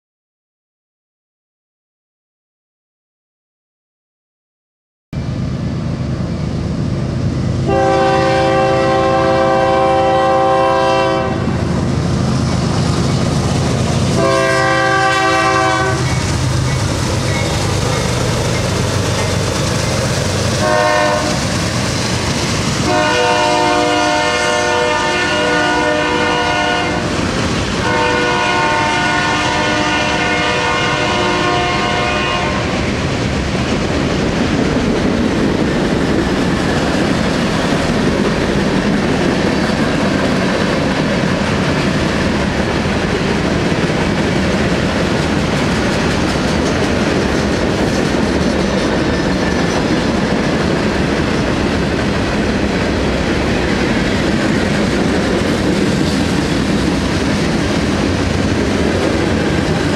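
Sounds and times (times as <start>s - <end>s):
train rumbling past: 5.2s - 59.9s
locomotive air horn blasts: 7.6s - 11.6s, 14.2s - 16.2s, 20.6s - 21.4s, 22.8s - 27.1s, 27.8s - 32.8s
wheels clacking over rail joints: 11.8s - 23.4s, 32.8s - 59.9s.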